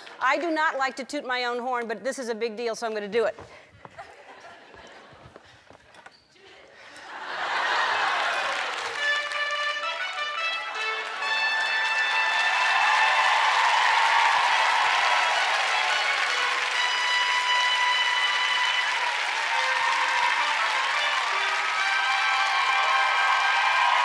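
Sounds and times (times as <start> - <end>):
audience applauding: 7.0 - 24.0.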